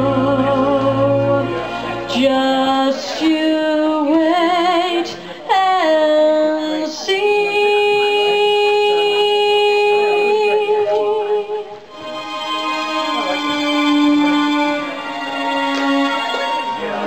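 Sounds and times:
woman singing slow melody: 0.0s - 11.9s.

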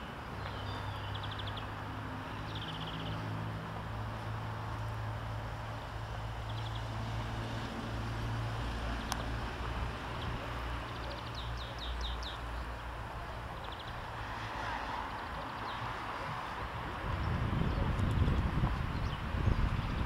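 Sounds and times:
small birds chirping: 0.2s - 3.4s, 6.4s - 7.1s, 8.8s - 14.2s, 15.1s - 20.0s.

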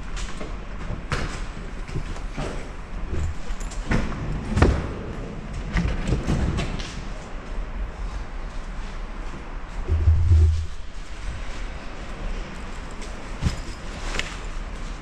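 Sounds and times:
low rumble: 9.8s - 11.6s.

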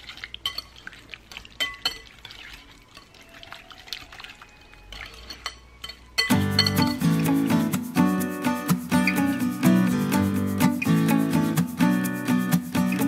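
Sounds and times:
whisk squelching in thick sauce: 0.0s - 5.6s
whisk wires clinking on glass: 5.0s - 7.0s.

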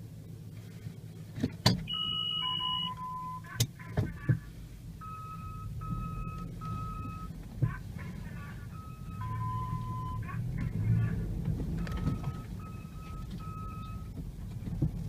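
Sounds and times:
vehicle driving drone: 0.0s - 15.0s
electronic beep tune: 1.9s - 3.5s, 5.0s - 7.3s, 8.7s - 10.2s, 11.8s - 14.1s.

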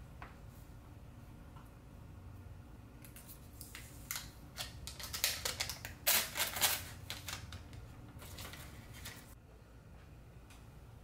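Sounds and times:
plastic wrap crinkling: 3.6s - 9.4s.

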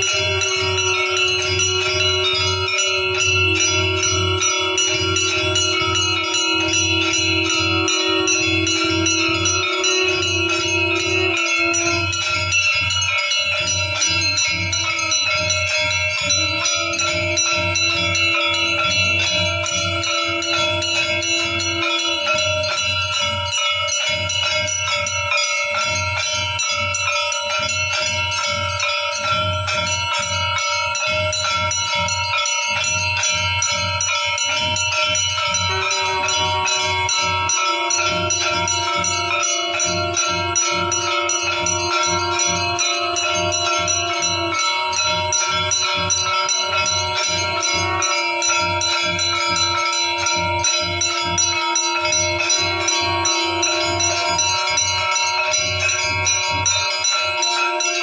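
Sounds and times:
held low tone: 0.0s - 25.0s, 33.0s - 58.0s
low pulsing beat: 0.0s - 25.0s
temple bells ringing: 0.0s - 58.0s.

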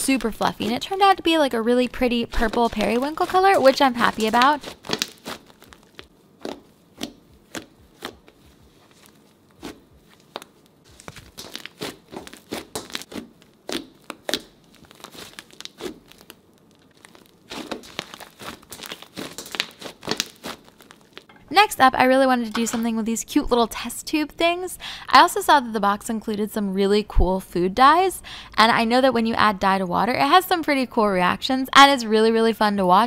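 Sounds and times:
slime crackling and popping: 1.9s - 21.3s.

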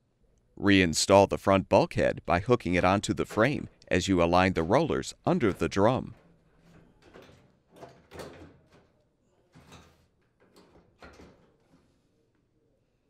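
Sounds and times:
faint knocks and scrapes: 3.2s - 12.5s.

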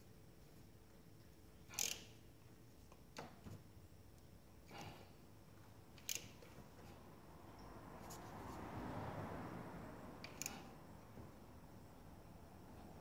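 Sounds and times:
soft rustle of gloved hands: 7.9s - 8.7s.

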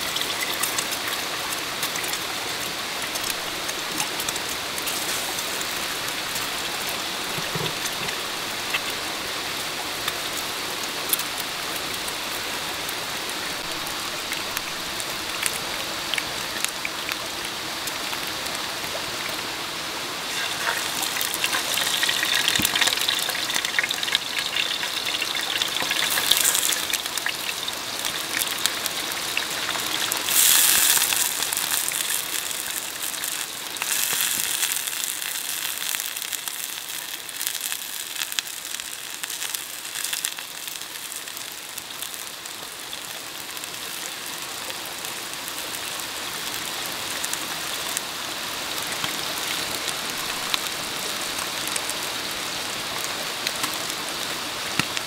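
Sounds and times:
food sizzling in hot oil: 0.0s - 17.1s, 20.2s - 52.0s, 53.0s - 55.0s.

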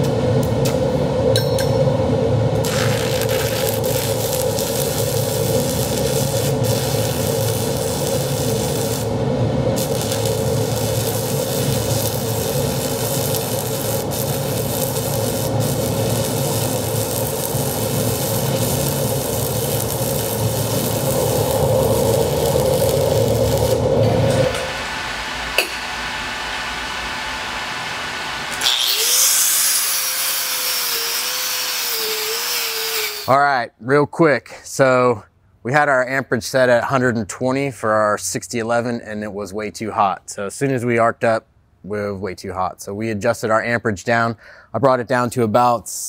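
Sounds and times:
welding arc crackling sizzle: 2.5s - 27.4s, 28.0s - 33.3s.

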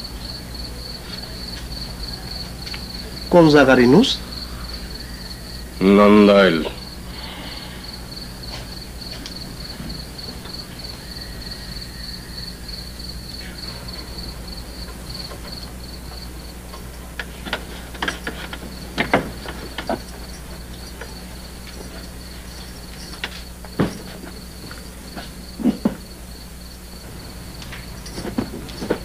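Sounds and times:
crickets chirping: 0.0s - 29.0s
low electrical hum: 0.0s - 29.0s
sharp clicks and knocks: 14.8s - 21.8s.

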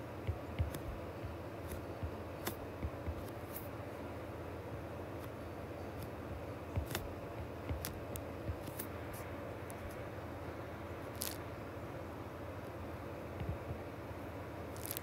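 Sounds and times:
steady low hum: 0.0s - 15.0s
stylus tapping on glass screen: 0.2s - 3.4s, 6.3s - 8.7s.

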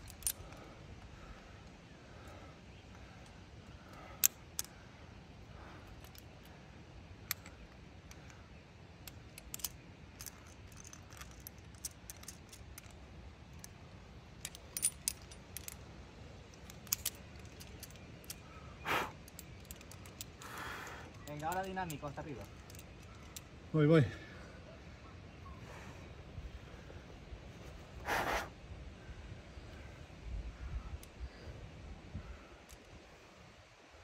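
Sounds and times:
metal climbing gear clinking: 0.0s - 23.7s.

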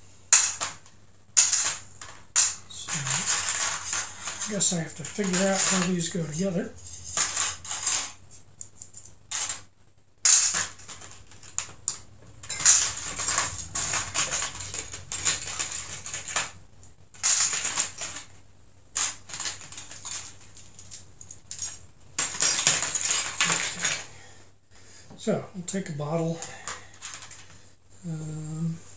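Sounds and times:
metal bottle cap parts clinking: 1.4s - 9.6s, 10.2s - 16.5s, 19.0s - 24.0s.

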